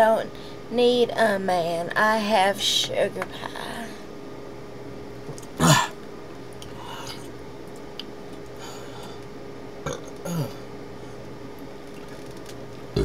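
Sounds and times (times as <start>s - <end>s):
woman burping: 5.6s - 6.0s, 9.8s - 10.6s.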